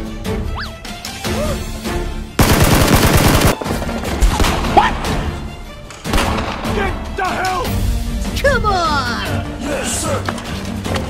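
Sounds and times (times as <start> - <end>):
background music: 0.0 - 11.0
automatic gunfire burst: 2.4 - 4.7.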